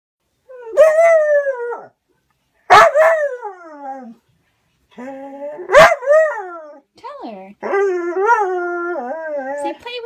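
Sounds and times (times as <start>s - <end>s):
dog howling whines: 7.6s - 9.8s.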